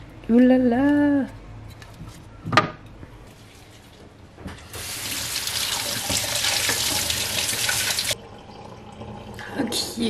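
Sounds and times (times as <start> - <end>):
water running and splashing: 4.8 - 9.4.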